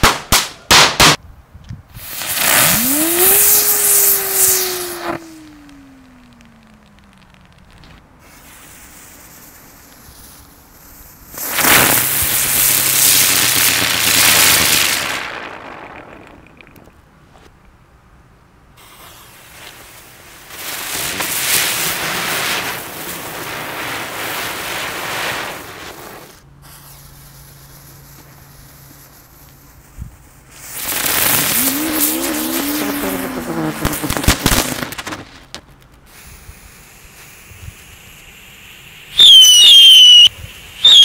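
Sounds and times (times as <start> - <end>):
firework sharp pops: 0.0 - 1.2, 2.0 - 17.5, 18.8 - 41.0
fireworks hissing: 1.9 - 16.9, 18.8 - 41.0
firework buzzing whistle: 2.0 - 10.6, 11.3 - 15.7, 30.6 - 34.9, 37.1 - 41.0.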